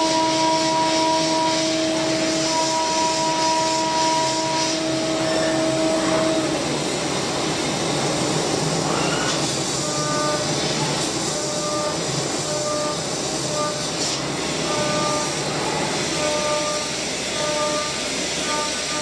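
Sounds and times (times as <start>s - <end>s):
milling machine spindle whine: 0.0s - 19.0s
end mill cutting metal: 9.8s - 19.0s.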